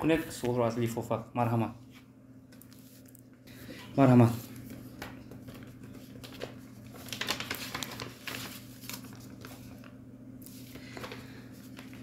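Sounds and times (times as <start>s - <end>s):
paper rustling and crinkling: 4.2s - 12.0s.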